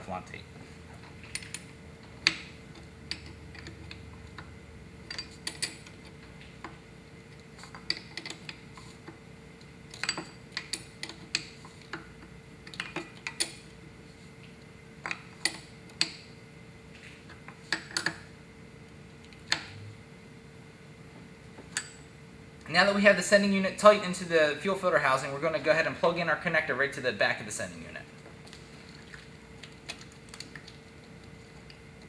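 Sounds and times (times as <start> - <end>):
faint steady hum: 0.0 - 32.0
wrench clinking on metal: 5.1 - 5.9.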